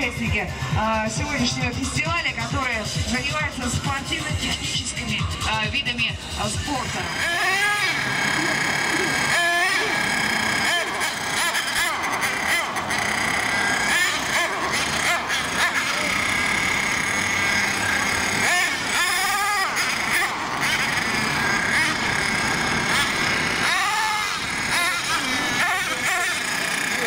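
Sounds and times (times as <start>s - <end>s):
model truck engine revving: 6.2s - 27.0s.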